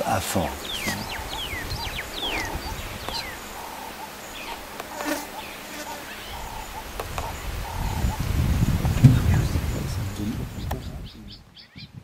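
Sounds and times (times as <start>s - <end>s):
insects buzzing: 0.0s - 11.7s
whistled bird notes: 0.6s - 4.6s.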